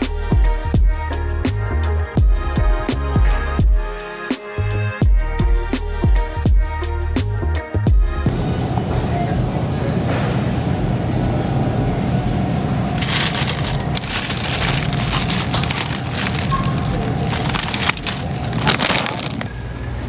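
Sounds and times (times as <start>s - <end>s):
plastic bag crinkling: 13.0s - 19.5s.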